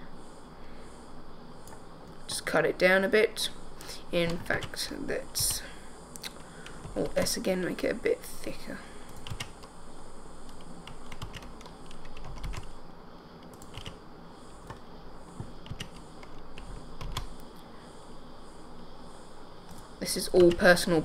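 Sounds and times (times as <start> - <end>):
keyboard and mouse clicking: 9.1 - 9.7, 10.5 - 12.7, 13.4 - 14.0, 14.6 - 14.8, 15.4 - 17.5.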